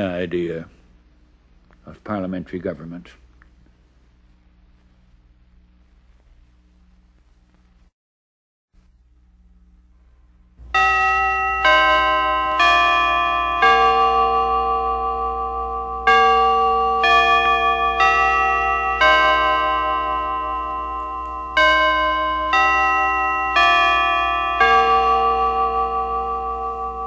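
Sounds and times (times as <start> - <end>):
chime bells playing a tune: 10.7 - 27.0.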